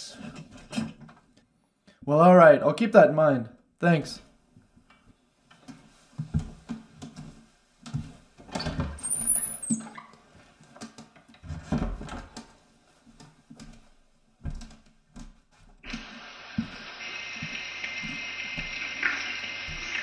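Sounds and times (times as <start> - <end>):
short high squeak: 9.0 - 10.1
steady hiss: 15.8 - 20.0.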